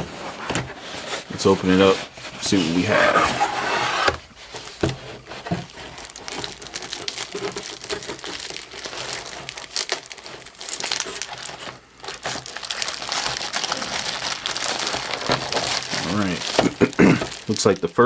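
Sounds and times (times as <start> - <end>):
plastic wrapping crinkling: 4.4 - 18.0.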